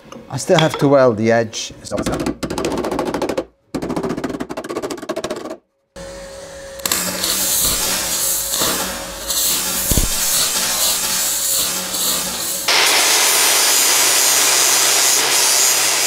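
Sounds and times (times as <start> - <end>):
welder arc crackling and hissing: 6.7 - 16.0.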